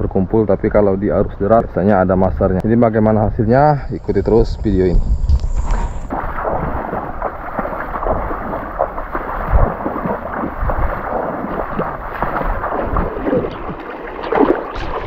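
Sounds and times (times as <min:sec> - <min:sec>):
feet wading through water: 0:06.0 - 0:15.0.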